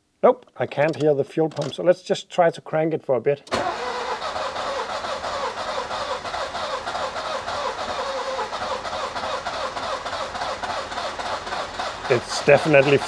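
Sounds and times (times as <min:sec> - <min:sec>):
engine cranking without starting: 0:03.5 - 0:13.0.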